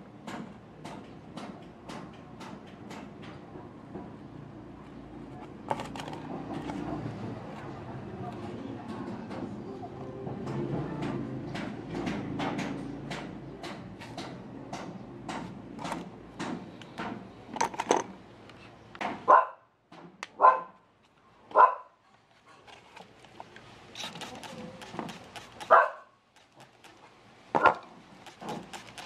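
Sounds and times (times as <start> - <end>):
dog barking: 19.3 - 19.7, 20.4 - 20.8, 21.5 - 22.0, 25.7 - 26.2.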